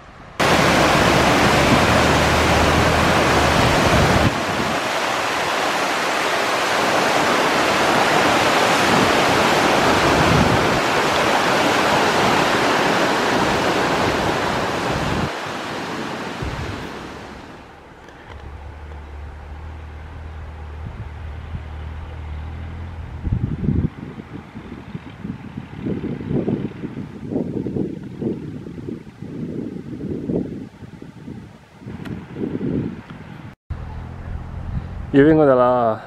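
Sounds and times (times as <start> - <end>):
waterfall and stream rushing: 0.0 - 20.6.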